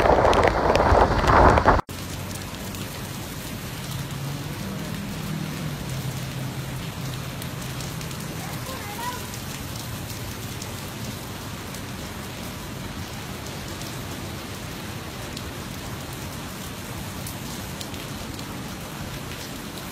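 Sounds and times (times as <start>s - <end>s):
raindrop ticks: 0.0s - 14.0s
steady rain hiss: 0.0s - 19.9s.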